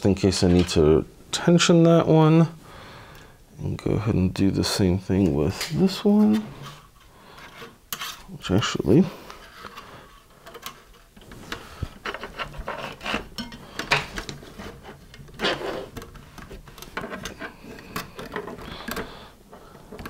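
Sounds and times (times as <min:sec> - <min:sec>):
zip tie rubbing and scraping: 0:11.3 - 0:13.4, 0:14.3 - 0:18.7.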